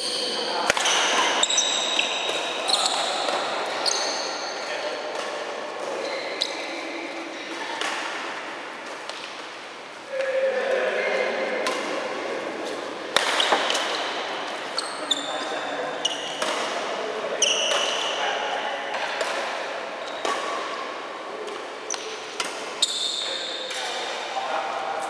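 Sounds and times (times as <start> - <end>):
sneakers squeaking on court: 0.0 - 6.9, 13.4 - 16.8, 21.9 - 23.6
background voices talking: 0.0 - 25.0
rackets smacking shuttlecock: 0.6 - 4.1, 5.1 - 6.0, 11.6 - 12.0, 13.1 - 14.3, 15.4 - 16.9, 17.5 - 18.2, 18.9 - 24.1.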